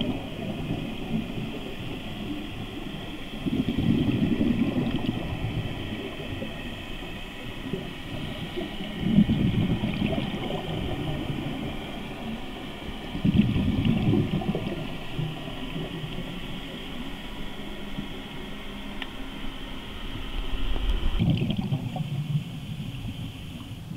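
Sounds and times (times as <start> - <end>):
regulator exhale bubbles: 3.3 - 6.7, 7.4 - 12.4, 20.8 - 23.9.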